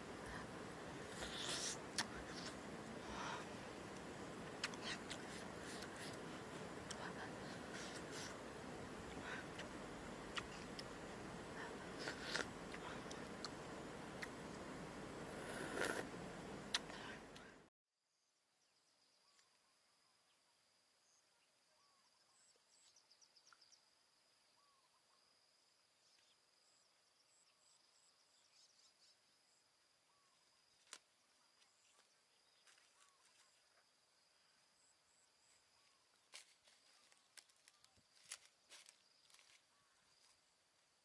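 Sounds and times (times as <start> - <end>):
high insect tone: 19.0 - 41.0.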